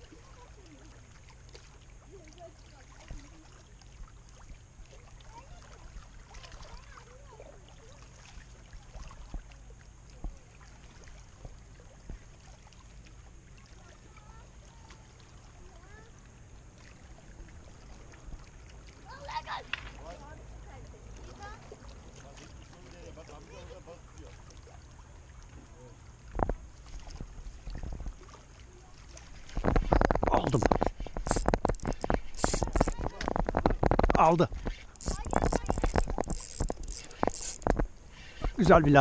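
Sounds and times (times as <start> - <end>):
small waves lapping on rocks: 0.0 - 39.0
wind rumble on microphone: 26.3 - 28.3, 29.4 - 36.8
soft ticks: 30.8 - 38.5.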